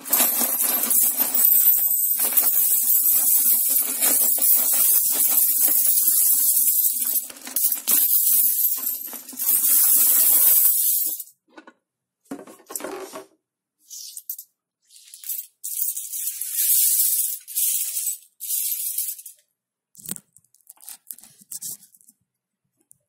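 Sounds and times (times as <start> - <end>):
coins clinking on tile floor: 0.0 - 11.3, 15.1 - 19.4
coins rattling in plastic piggy bank: 0.0 - 11.3, 15.2 - 19.4.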